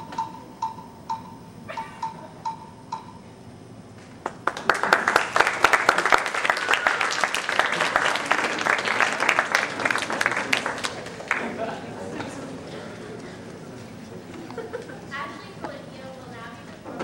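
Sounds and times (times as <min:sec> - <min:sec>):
short pinging music notes: 0:00.0 - 0:03.3
audience applause: 0:04.2 - 0:12.5.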